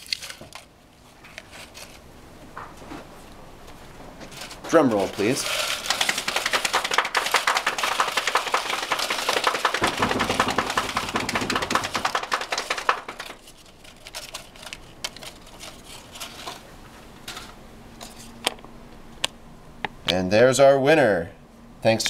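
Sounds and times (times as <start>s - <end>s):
paper crinkling: 0.0s - 2.0s, 4.2s - 16.7s
improvised drum roll: 5.4s - 13.4s.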